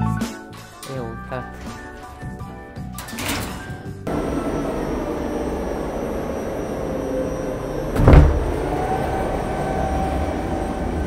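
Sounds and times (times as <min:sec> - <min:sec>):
stage lift drive rumbling: 0:01.5 - 0:11.0
loud clunk: 0:07.9 - 0:08.7.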